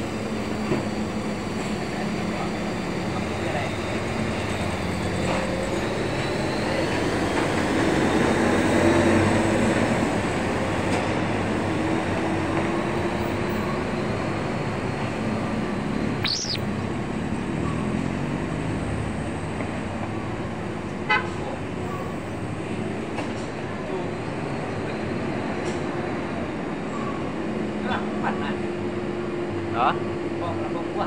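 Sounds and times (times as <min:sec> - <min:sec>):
brief high squeal: 0:16.2 - 0:16.6.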